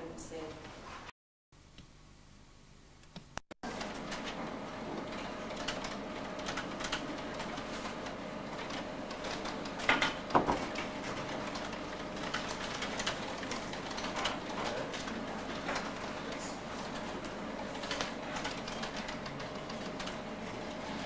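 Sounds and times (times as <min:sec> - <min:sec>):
room hum: 0:00.0 - 0:21.0
keyboard typing: 0:05.1 - 0:08.0, 0:08.6 - 0:21.0
loud knocks: 0:09.9 - 0:10.8.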